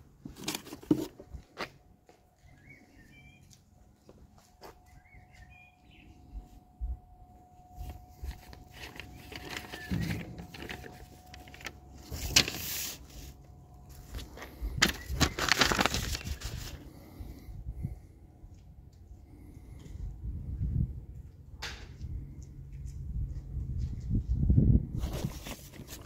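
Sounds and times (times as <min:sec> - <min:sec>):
paper rustling: 0:07.8 - 0:16.9, 0:25.0 - 0:26.0.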